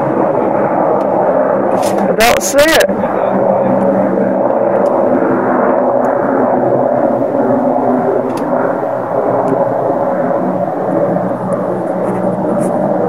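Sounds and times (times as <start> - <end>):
held humming tones: 0.0 - 13.0
loud droning rumble: 0.0 - 13.0.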